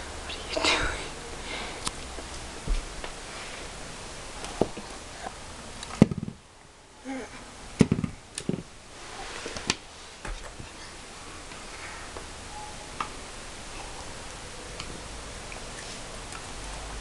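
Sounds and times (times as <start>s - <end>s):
knocks on wooden floor: 6.0s - 6.4s, 7.8s - 8.6s.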